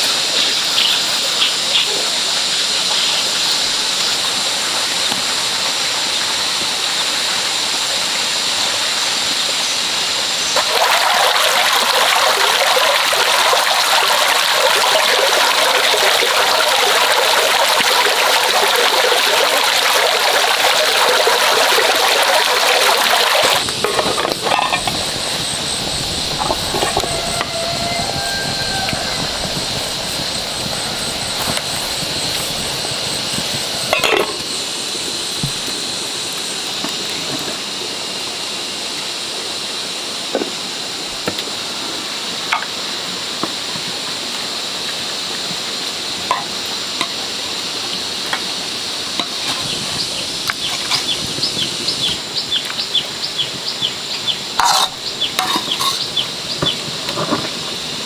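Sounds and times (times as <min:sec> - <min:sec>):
boiling water hissing: 0:00.0 - 0:58.0
high-pitched drone: 0:23.5 - 0:34.3
spoon clinking on bowls: 0:54.6 - 0:56.1.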